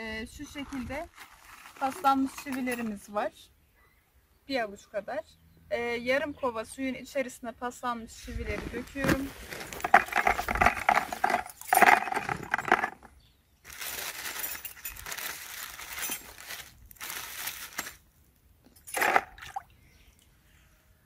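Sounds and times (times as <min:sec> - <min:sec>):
nails clinking in a plastic bucket: 0:01.8 - 0:03.1, 0:09.6 - 0:13.1, 0:13.9 - 0:16.7, 0:18.7 - 0:19.5.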